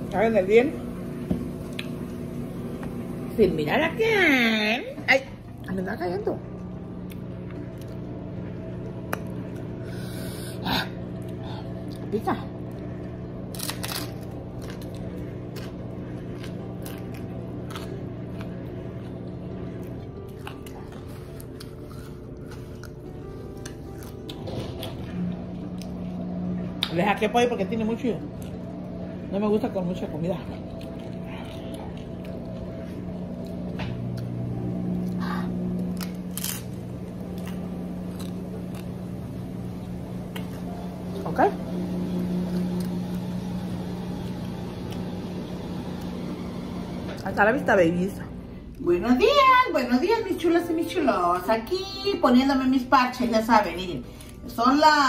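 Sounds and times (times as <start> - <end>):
steady low hum: 0.0 - 55.0
crisp shell crunching when chewed: 12.7 - 26.2, 30.5 - 39.3.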